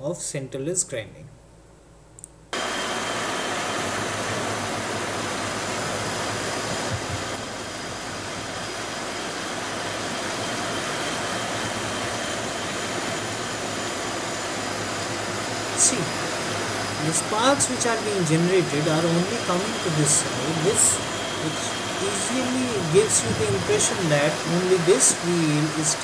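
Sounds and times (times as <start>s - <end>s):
faint high whine: 0.0s - 26.0s
grinding machine grinding metal: 6.3s - 26.0s.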